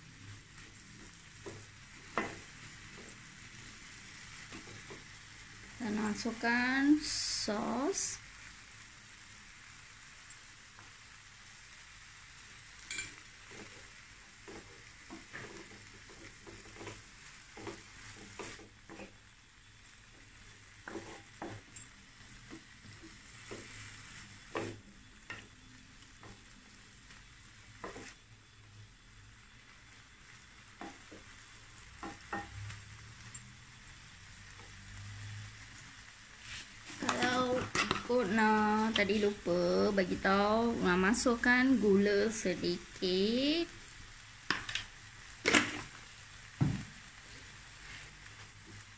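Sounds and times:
faint sizzle: 0.0s - 48.9s
wooden spatula scraping a pan: 13.2s - 19.3s, 20.1s - 25.6s, 27.7s - 28.2s, 36.3s - 39.5s, 47.2s - 48.9s.

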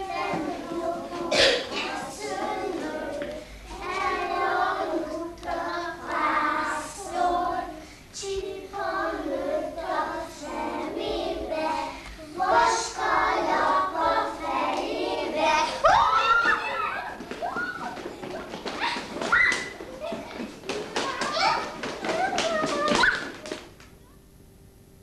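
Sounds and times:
children singing: 0.0s - 18.4s.

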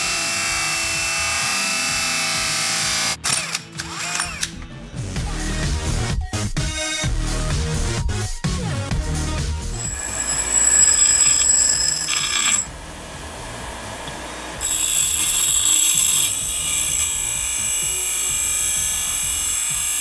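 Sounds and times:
metal screeching on grinder wheel: 9.7s - 12.8s, 14.6s - 20.0s
bench grinder whining: 9.7s - 20.0s.

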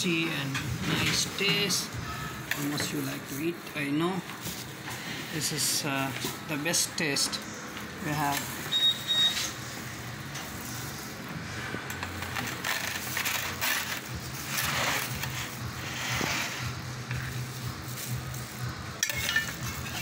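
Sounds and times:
low kitchen hum: 0.0s - 20.0s
metal spatula scraping pizza pans: 0.4s - 3.1s, 12.4s - 16.8s.

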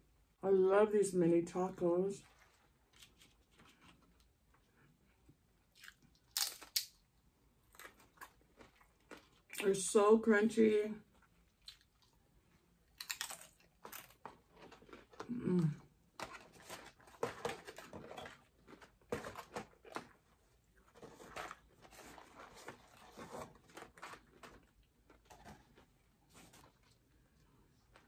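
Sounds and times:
chewing crunchy food: 5.7s - 7.0s, 7.6s - 9.6s, 11.1s - 15.9s
woman humming: 15.3s - 15.8s
paper boxes and bags rustling: 16.2s - 27.1s.

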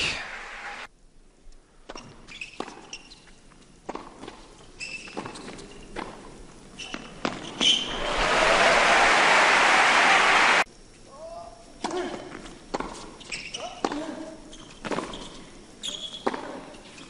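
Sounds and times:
crowd applause: 0.0s - 0.9s, 7.8s - 10.7s
shoe squeaks: 1.9s - 3.4s, 4.8s - 5.9s, 6.8s - 7.9s, 13.2s - 13.9s, 14.5s - 17.0s.

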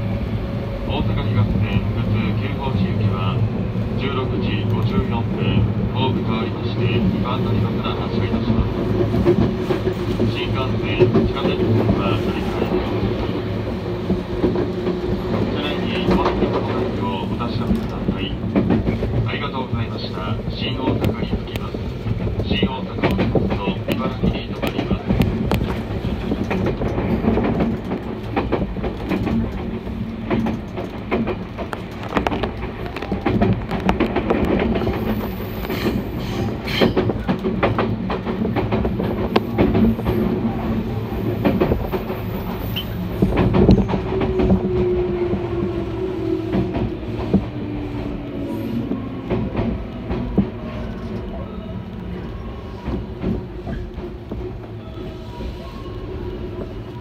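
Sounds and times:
train low rumble: 0.0s - 57.0s
train wheels clicking over rail joints: 8.2s - 12.0s, 12.6s - 19.3s, 20.4s - 40.6s, 41.2s - 45.5s.

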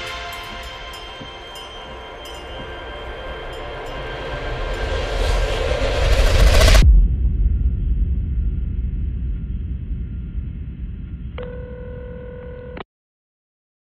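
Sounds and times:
loud rushing noise: 2.4s - 11.2s
deep rumble: 2.8s - 11.4s.

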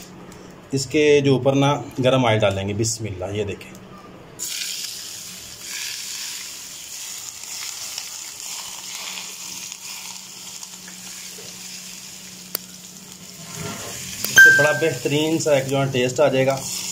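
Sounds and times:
hot oil sizzling: 4.4s - 16.9s.

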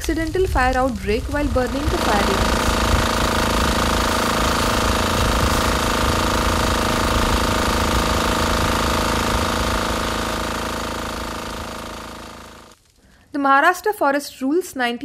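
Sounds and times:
high-pressure water jet hissing: 0.0s - 12.7s
water pump engine running: 1.0s - 12.8s.

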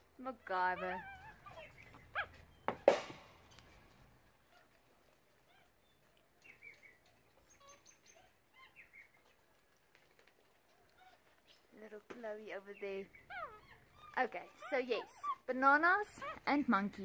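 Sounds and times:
monkeys chirping and squeaking: 0.7s - 3.0s, 5.4s - 9.3s, 12.7s - 16.6s
monkey squealing: 13.2s - 15.4s.

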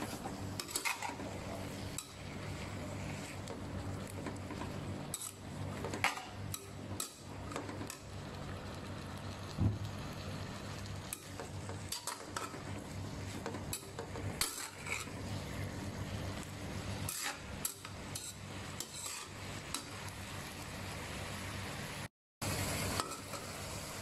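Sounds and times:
spatula scraping a pan: 0.0s - 8.0s, 11.1s - 15.8s, 17.0s - 19.8s.

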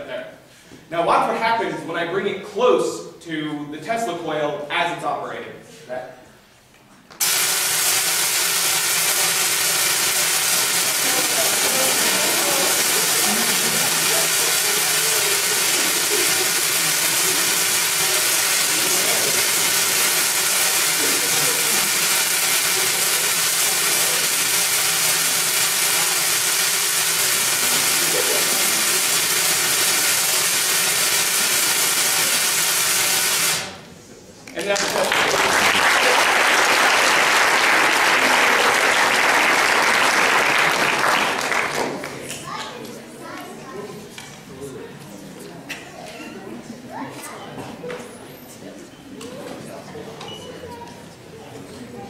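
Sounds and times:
tesla coil buzzing crackle: 7.2s - 33.8s.

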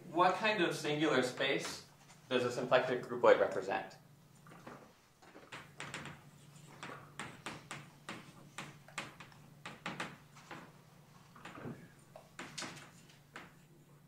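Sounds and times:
chalk writing on blackboard: 6.2s - 9.4s.

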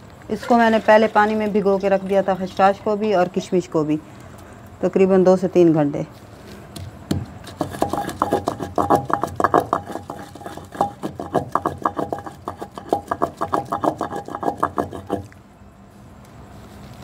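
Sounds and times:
wooden pestle pounding in clay mortar: 6.8s - 15.3s.

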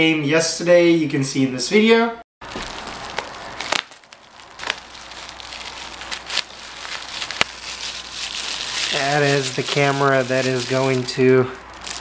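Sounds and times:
plastic packaging crinkling: 2.4s - 12.0s.

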